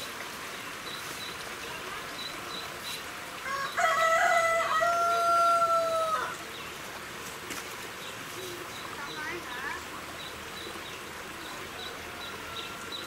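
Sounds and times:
rooster crowing: 0:03.4 - 0:06.4.

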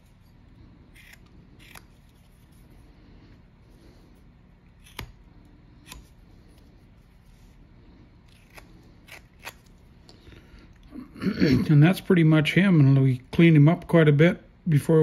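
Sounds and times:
faint room noise: 0:00.0 - 0:15.0
knife cutting wood chips: 0:00.9 - 0:02.5.

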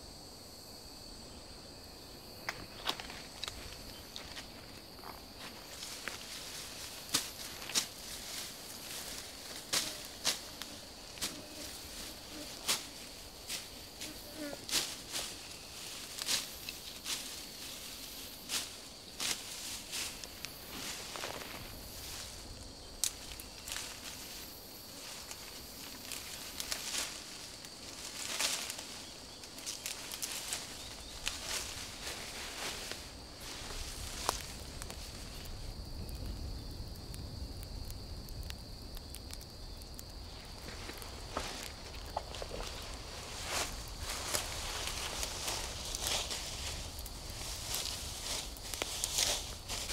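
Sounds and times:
high insect drone: 0:00.0 - 0:49.9
undergrowth snapping and rustling: 0:02.4 - 0:13.8, 0:18.5 - 0:35.9, 0:39.9 - 0:49.9.

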